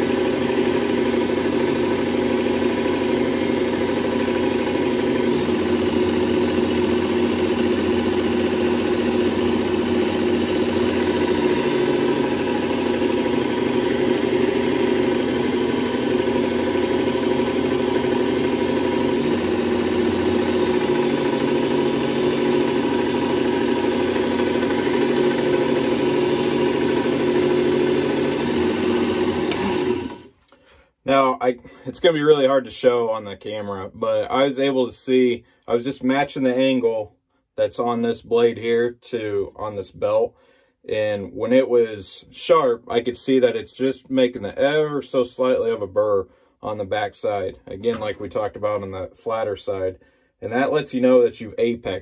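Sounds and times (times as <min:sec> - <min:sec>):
belt sharpener grinding blade: 0:00.0 - 0:30.3.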